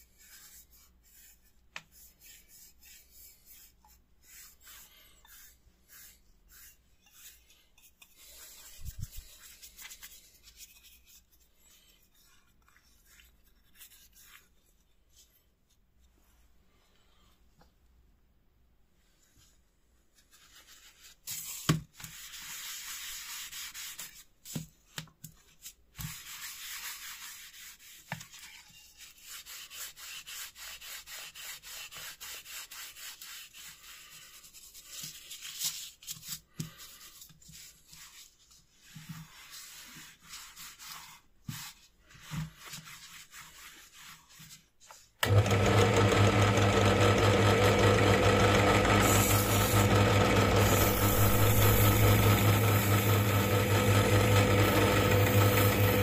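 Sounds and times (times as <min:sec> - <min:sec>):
cloth rubbing wax into wood: 0:00.1 - 0:16.5, 0:19.2 - 0:24.3, 0:25.4 - 0:45.0, 0:48.2 - 0:56.0
electric power tool humming: 0:45.2 - 0:56.0.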